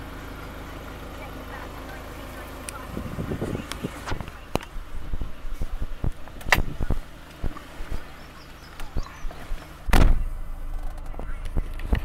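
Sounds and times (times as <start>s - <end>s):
minibus engine idling: 0.0s - 12.0s
loud thump: 9.9s - 10.3s.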